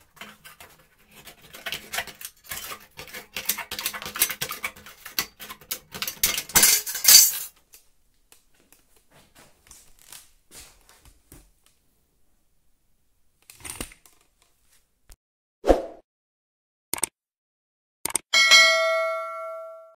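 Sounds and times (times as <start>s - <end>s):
sheet metal pieces clinking: 5.1s - 7.6s.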